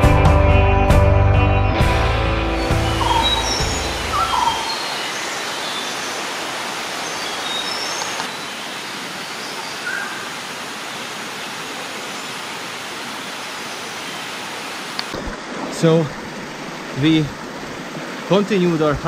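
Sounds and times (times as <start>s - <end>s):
creek water rushing: 1.8s - 19.0s
faint bird chirps: 2.6s - 6.2s, 7.0s - 10.4s.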